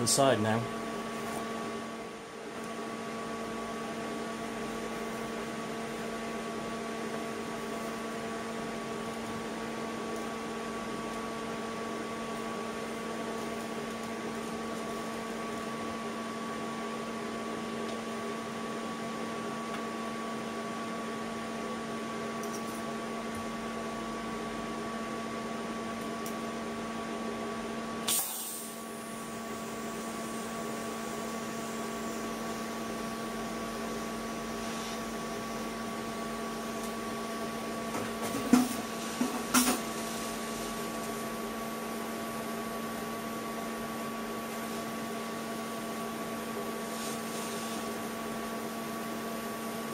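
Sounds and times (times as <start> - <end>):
welder humming: 27.7 - 49.9
welding arc pops: 28.0 - 28.8.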